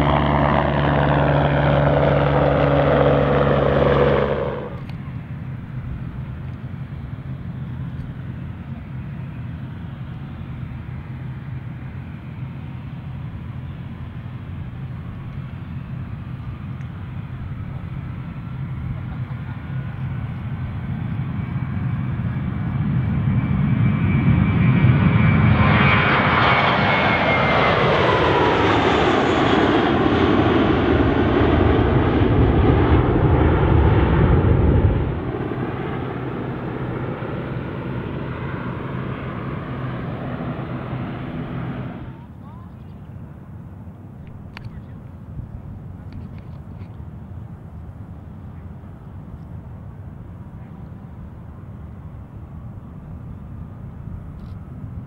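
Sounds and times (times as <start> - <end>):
quiet steady engine sound: 0.0 - 23.3, 35.0 - 55.0
jet taking off: 0.0 - 42.4.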